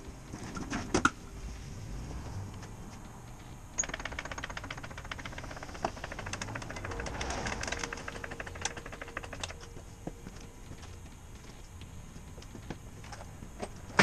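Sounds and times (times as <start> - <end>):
rapid ratchet-like clicks: 3.3 - 9.7
sharp metallic knocks: 3.8 - 10.2.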